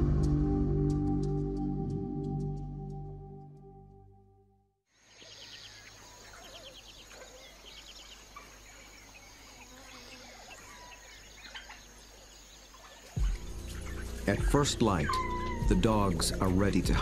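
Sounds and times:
soft music: 0.0s - 4.6s, 13.2s - 17.0s
birds chirping and trilling: 5.0s - 17.0s
high insect drone: 7.6s - 11.4s.

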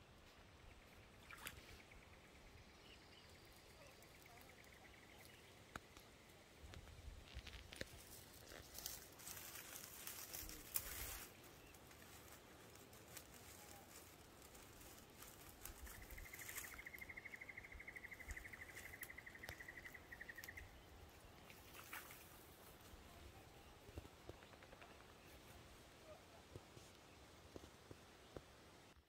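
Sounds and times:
rustling and handling noise: 6.6s - 17.2s.

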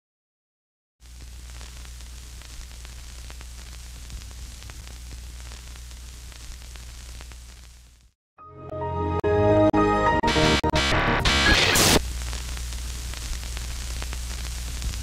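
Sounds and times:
low electrical hum: 1.0s - 8.1s, 12.0s - 15.0s
static crackles: 1.0s - 8.2s, 10.4s - 15.0s
static hiss: 1.0s - 8.2s, 10.8s - 15.0s.

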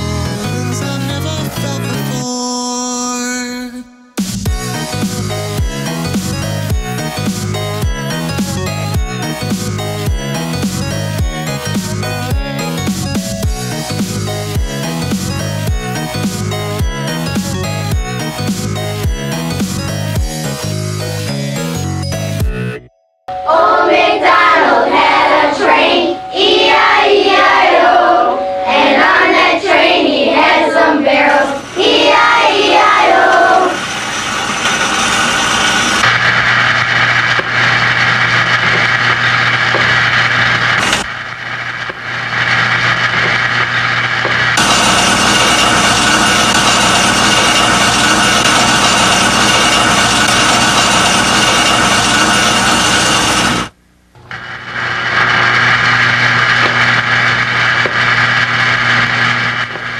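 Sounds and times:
people singing with music: 23.3s - 33.8s
low hum: 31.4s - 59.9s
toy train motor buzzing and grinding: 33.1s - 53.7s, 54.6s - 59.9s.

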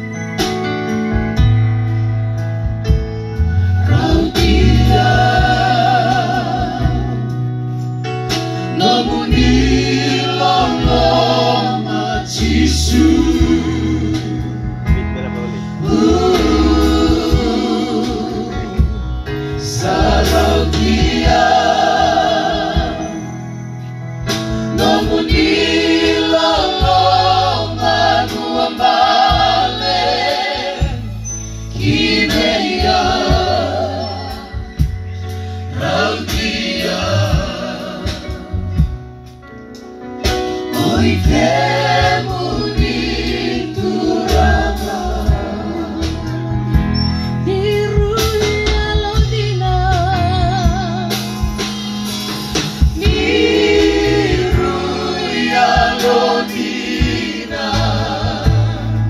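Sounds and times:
keyboard accompaniment with bass: 0.0s - 59.0s
group singing through speakers: 3.8s - 7.6s, 8.6s - 14.8s, 15.8s - 23.5s, 24.5s - 35.0s, 35.6s - 38.9s, 40.6s - 47.1s, 52.8s - 59.0s.

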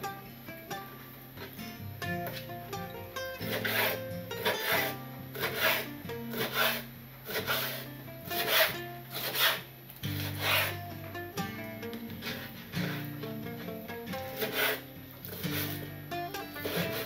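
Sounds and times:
soft acoustic guitar music: 0.0s - 17.0s
knife slicing raw meat on board: 3.5s - 7.8s, 8.4s - 10.7s, 14.4s - 15.8s.

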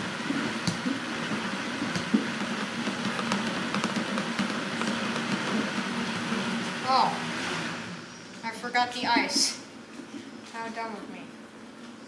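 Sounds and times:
blender running at high speed: 0.0s - 8.0s.

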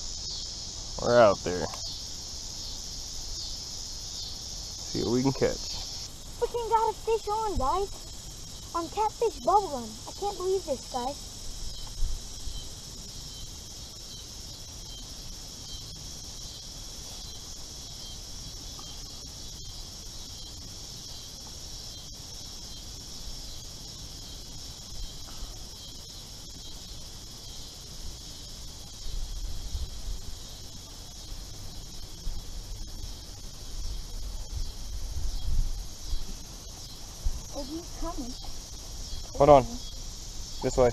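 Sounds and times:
high-pitched insect chorus: 0.0s - 40.9s
wind rumble on microphone: 33.8s - 36.4s.

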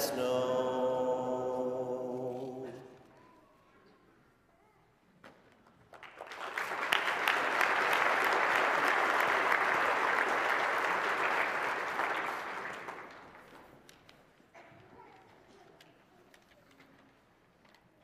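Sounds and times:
audience clapping: 5.6s - 14.1s.

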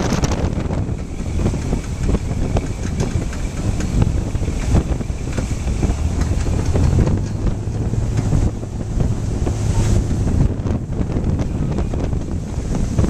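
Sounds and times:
low engine hum: 0.0s - 13.0s
truck driving through water: 0.0s - 13.0s
wheels splashing water: 0.0s - 13.0s
wind buffeting microphone: 0.0s - 13.0s.

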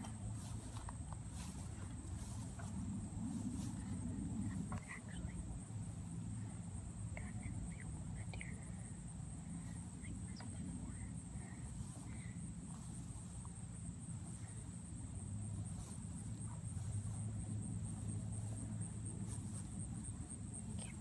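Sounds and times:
insects buzzing: 0.0s - 21.0s
low steady rumble: 0.0s - 21.0s.

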